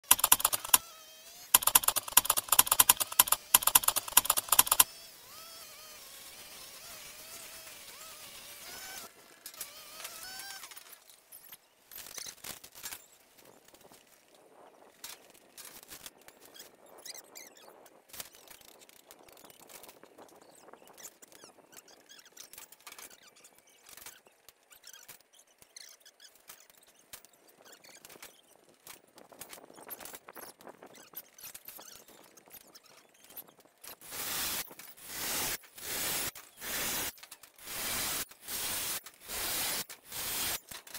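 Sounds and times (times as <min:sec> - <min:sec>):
fast sharp tool clicking: 0:00.0 - 0:00.8, 0:01.6 - 0:04.9, 0:37.7 - 0:40.6.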